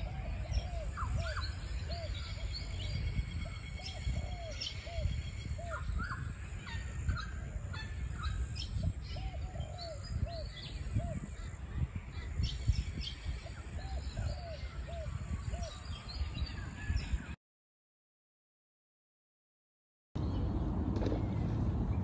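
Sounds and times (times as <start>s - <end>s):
birds calling: 0.0s - 17.4s.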